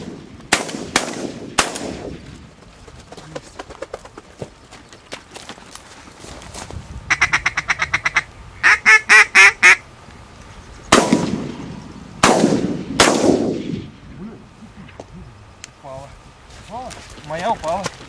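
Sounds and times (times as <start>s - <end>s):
shotgun shots echoing: 0.0s - 2.2s, 10.9s - 14.0s
duck call quacks: 7.1s - 9.8s.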